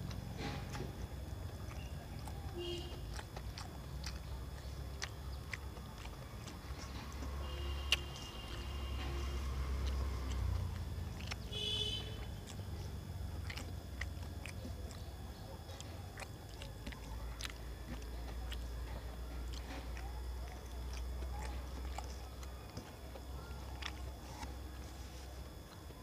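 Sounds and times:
person chewing food: 0.0s - 26.0s
wet mouth and finger clicks: 3.0s - 12.8s, 13.4s - 24.6s.

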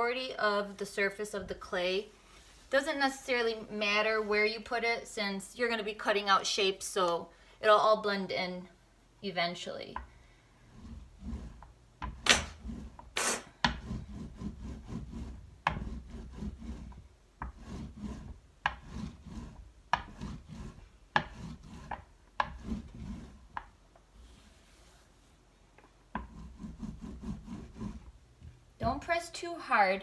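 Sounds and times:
rolling pin rubbing over clay: 10.0s - 28.2s.

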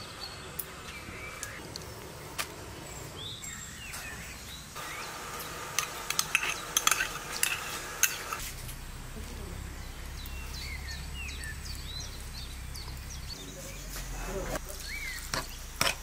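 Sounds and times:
metal spoon scraping ceramic cup: 6.1s - 8.4s
faint bird chirps: 8.8s - 15.7s.

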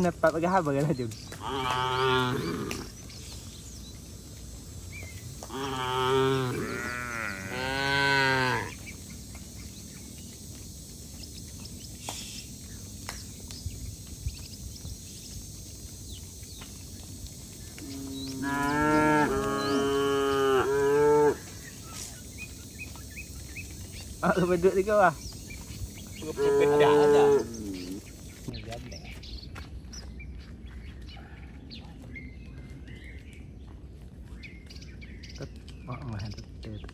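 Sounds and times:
cattle mooing: 1.4s - 2.9s, 5.5s - 8.8s, 17.8s - 21.5s, 26.2s - 28.0s.

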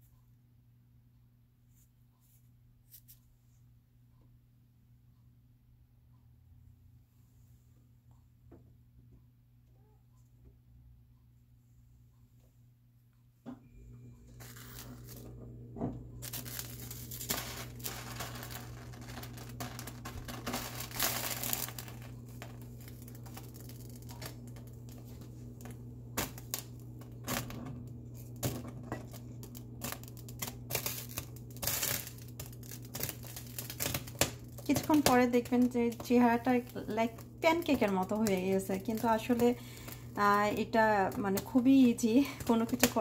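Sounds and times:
low hum: 7.7s - 43.0s
eggs sizzling in frying pan: 14.4s - 15.3s, 15.9s - 43.0s.

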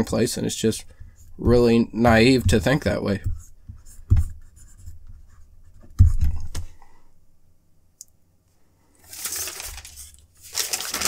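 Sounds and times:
dull knock: 1.0s - 4.4s.

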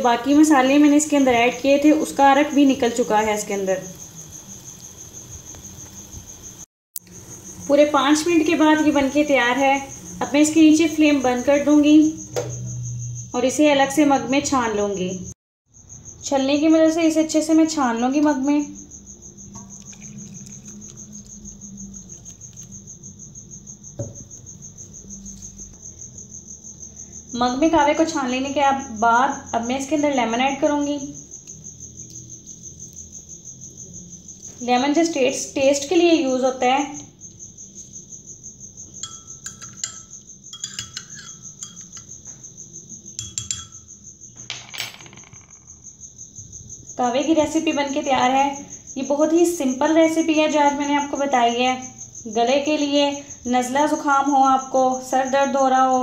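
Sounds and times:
cricket chirping: 0.0s - 56.0s
teaspoon clinking in glass mug: 39.0s - 42.2s, 43.1s - 43.9s.

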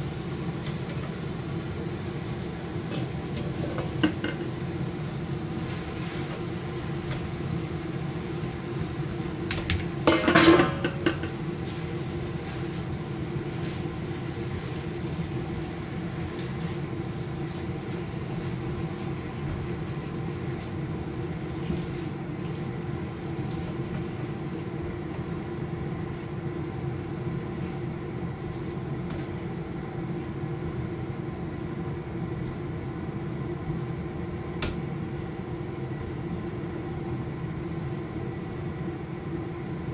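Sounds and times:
spatula stirring food in frying pan: 0.0s - 22.7s
cookware clattering: 3.4s - 4.5s, 10.0s - 11.4s.

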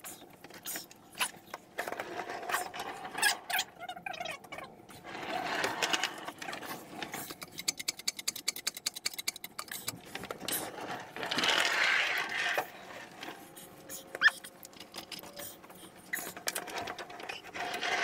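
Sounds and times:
jack ratcheting clicks: 7.1s - 10.0s
metal scraping: 10.0s - 14.1s, 14.8s - 18.0s.

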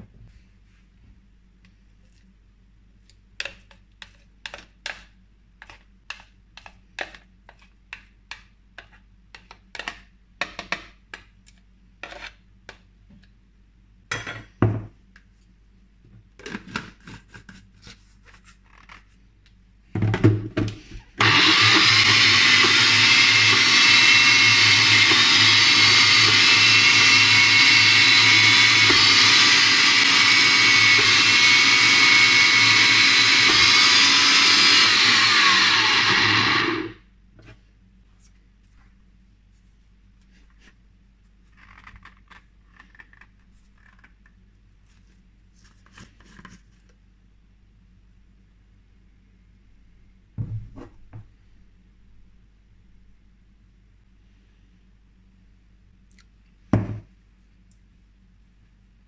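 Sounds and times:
blender running: 21.2s - 37.0s.

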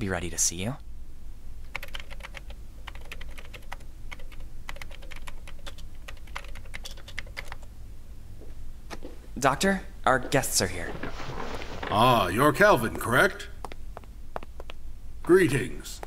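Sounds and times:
computer keyboard typing: 1.7s - 7.7s.

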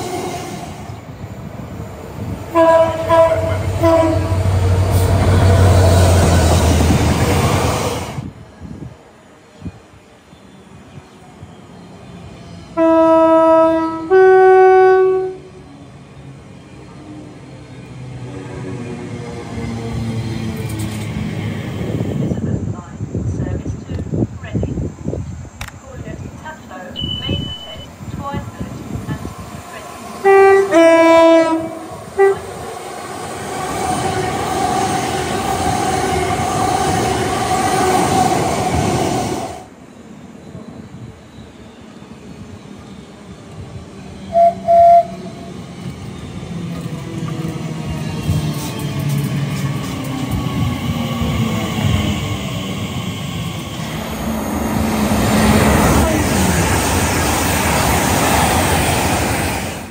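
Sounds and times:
train rumble: 0.0s - 59.9s
train two-tone horn: 2.5s - 5.7s, 12.8s - 15.6s, 27.0s - 27.9s, 30.2s - 32.6s, 44.3s - 45.6s.

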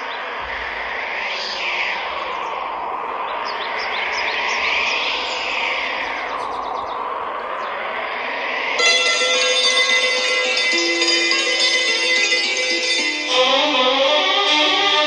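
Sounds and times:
steady whooshing noise: 0.0s - 11.0s.

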